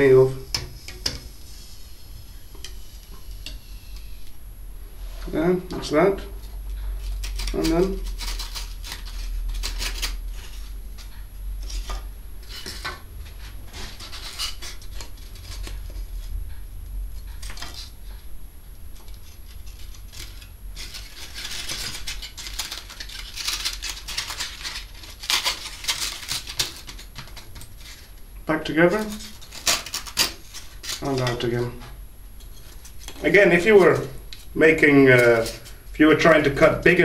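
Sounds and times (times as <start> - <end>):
low steady hum: 0.0 - 37.0.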